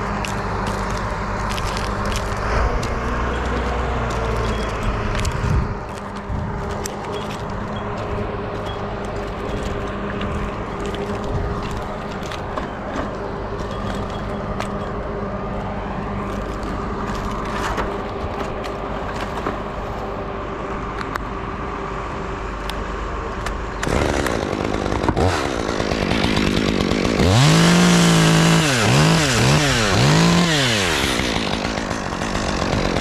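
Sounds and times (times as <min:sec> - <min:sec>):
engine running steadily: 0:00.0 - 0:26.4.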